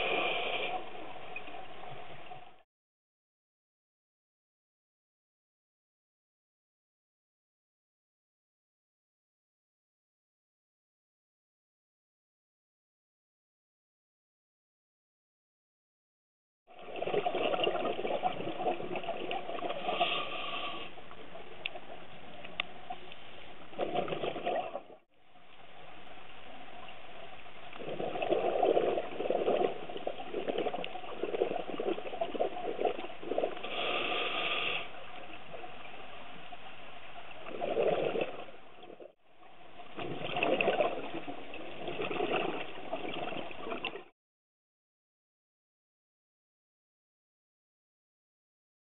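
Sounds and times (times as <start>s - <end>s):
diver exhaling bubbles: 27.8s - 34.9s, 37.5s - 39.1s, 40.0s - 44.1s
steady regulator hiss: 33.6s - 35.0s.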